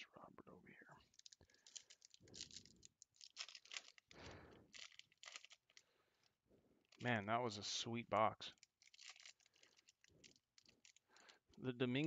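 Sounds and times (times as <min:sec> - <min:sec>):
foil wrapper tearing and crinkling: 0:01.2 - 0:05.8, 0:08.6 - 0:11.4.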